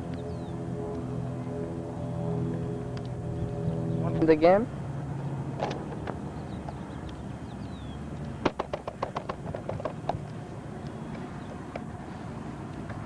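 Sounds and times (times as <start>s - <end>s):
outdoor background noise: 0.0s - 13.0s
soccer ball tapped by feet: 8.4s - 11.9s.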